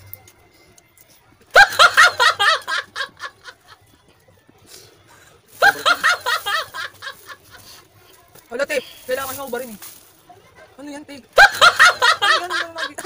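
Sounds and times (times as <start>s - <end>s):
high-pitched laughter: 1.5s - 3.8s, 5.6s - 7.4s.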